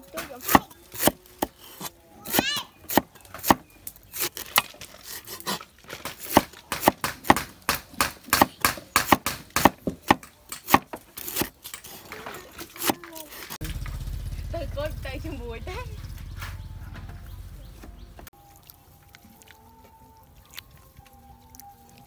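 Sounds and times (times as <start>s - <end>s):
cleaver chopping on wooden board: 0.2s - 11.6s, 12.8s - 13.2s.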